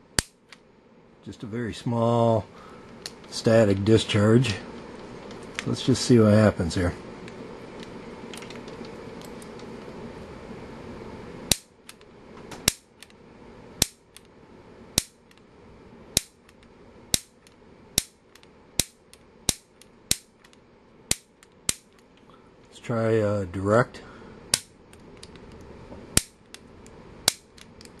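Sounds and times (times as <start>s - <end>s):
grill igniter snapping: 0.0s - 0.7s, 11.4s - 15.5s, 16.1s - 22.4s, 24.5s - 28.0s.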